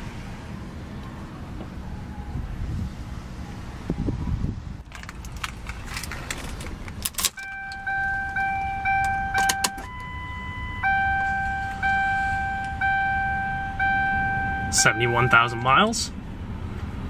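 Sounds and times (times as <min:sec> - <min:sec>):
keys jingling in ignition: 0:04.8 - 0:10.1
car dashboard warning chime: 0:07.4 - 0:15.9.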